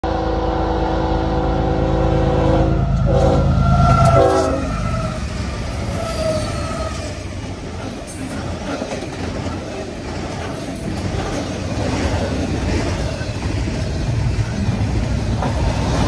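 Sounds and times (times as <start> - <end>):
locomotive horn blasts: 0.0 - 5.2
train cars rolling on rails: 2.7 - 16.0.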